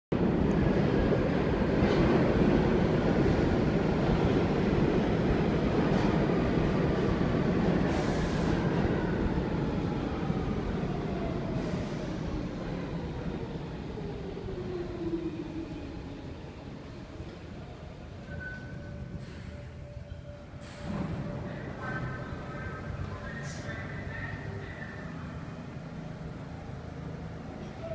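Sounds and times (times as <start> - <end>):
subway train rumbling and whining: 0.1 - 27.9.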